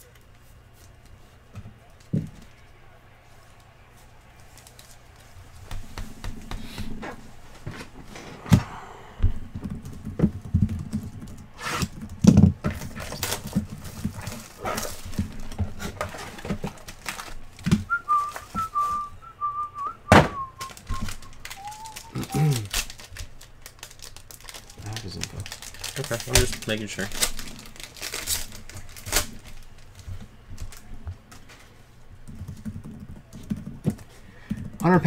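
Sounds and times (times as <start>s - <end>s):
packaging rustling: 9.8s - 19.1s, 20.6s - 31.7s
person whistling: 17.9s - 22.7s.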